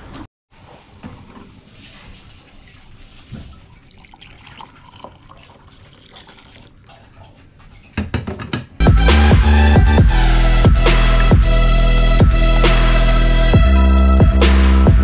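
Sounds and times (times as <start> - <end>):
coffee pouring into a mug: 3.7 - 7.3.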